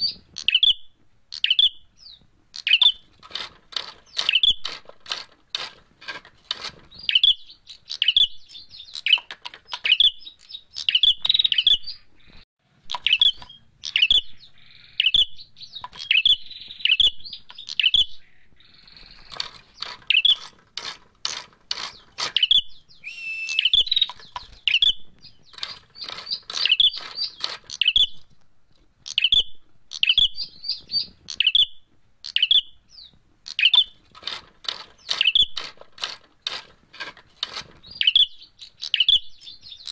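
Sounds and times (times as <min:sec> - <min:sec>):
bird chirping: 0:00.0 - 0:39.9
bird moving in cage: 0:02.9 - 0:07.3, 0:18.8 - 0:22.6, 0:25.4 - 0:28.3, 0:33.5 - 0:38.2.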